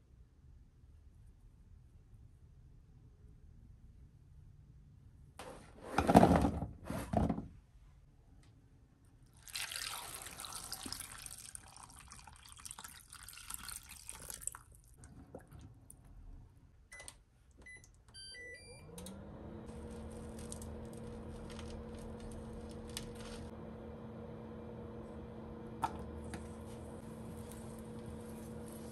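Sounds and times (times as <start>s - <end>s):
cooktop electrical hum: 3.4s - 28.9s
tap water running: 9.4s - 15.7s, 19.7s - 28.9s
cooktop control panel beeps: 16.9s - 19.2s.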